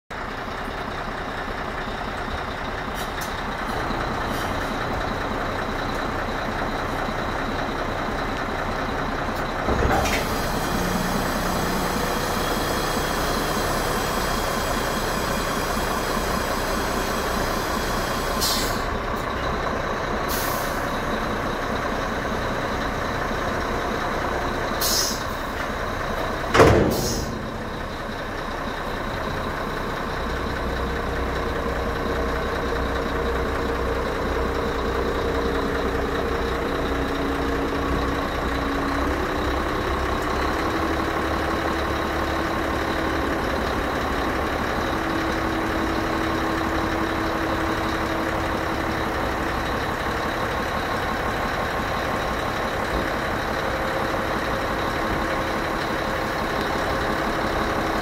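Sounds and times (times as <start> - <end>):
diesel truck engine running: 0.1 - 58.0.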